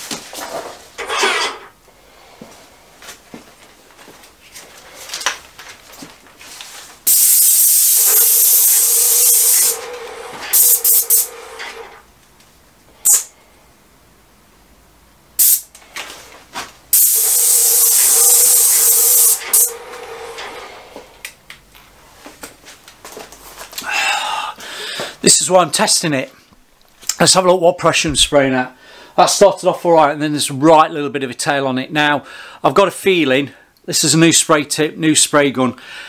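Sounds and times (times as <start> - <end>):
paint sprayer gun hissing: 7.1 - 12.0, 13.0 - 13.3, 15.4 - 15.7, 16.9 - 21.1.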